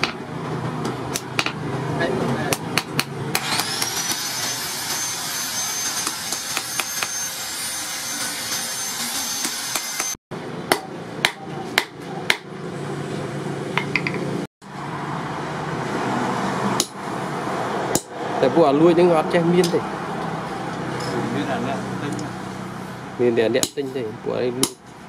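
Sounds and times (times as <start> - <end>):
hammer striking metal on anvil: 2.5 - 12.5, 16.8 - 17.0, 17.9 - 18.2.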